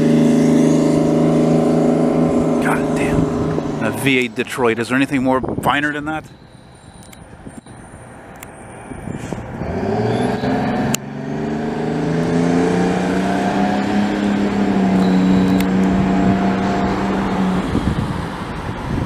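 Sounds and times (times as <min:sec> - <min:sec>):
diesel truck engine pulling away: 0:00.0 - 0:05.2, 0:08.8 - 0:19.0.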